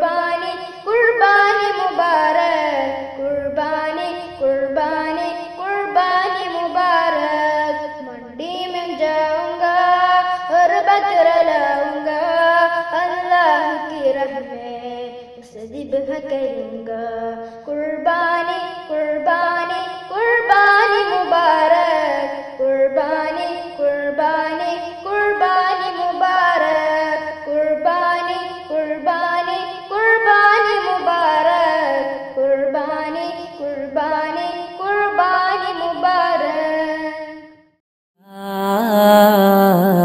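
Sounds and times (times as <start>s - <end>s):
person singing unaccompanied: 38.3s - 40.0s.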